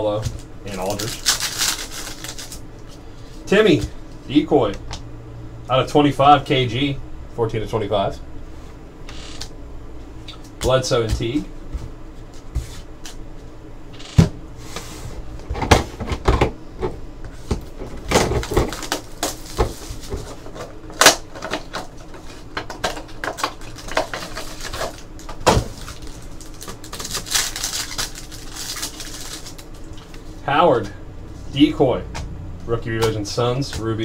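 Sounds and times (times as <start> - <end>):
card pack wrapper tearing: 0.7 - 2.6, 18.3 - 20.4, 21.0 - 29.8
card boxes tapping and shuffling: 15.5 - 27.9.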